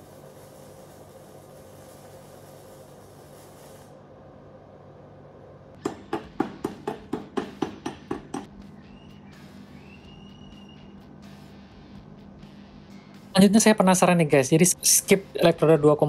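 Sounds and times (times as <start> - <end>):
welding arc hissing: 0.0 - 4.1.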